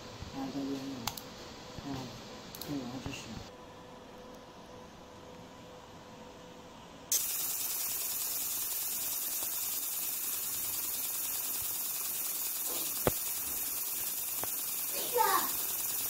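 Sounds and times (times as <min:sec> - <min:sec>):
laser engraver buzzing hiss: 0:07.1 - 0:16.0
sharp click: 0:12.6 - 0:14.6.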